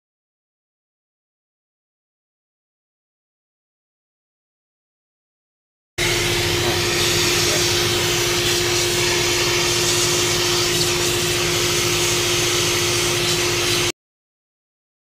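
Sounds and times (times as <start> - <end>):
shop vacuum running: 6.0 - 13.9.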